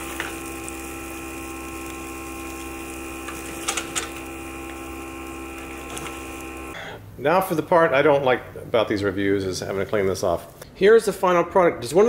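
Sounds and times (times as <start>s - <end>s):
fan humming: 0.0s - 10.3s.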